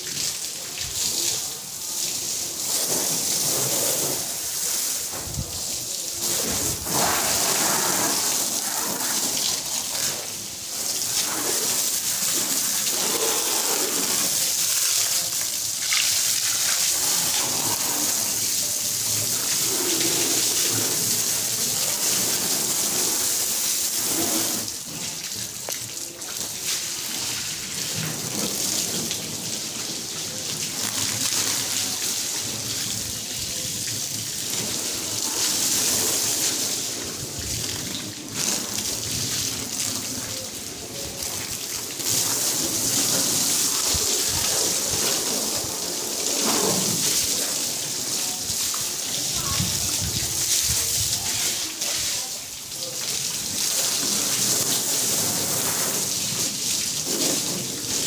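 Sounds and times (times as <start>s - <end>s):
hose water splashing on car: 0.0s - 58.0s.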